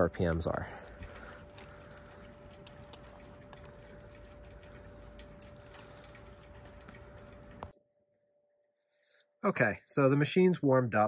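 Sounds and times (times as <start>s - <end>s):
light irregular ticks: 0.0s - 7.7s
faint steady hum: 0.0s - 7.8s.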